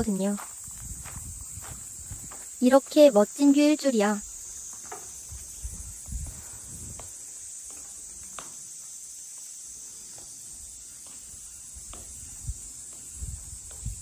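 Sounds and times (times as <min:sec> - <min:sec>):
insect chorus shrilling: 0:00.0 - 0:14.0
footsteps on wooden floorboards: 0:00.4 - 0:03.0.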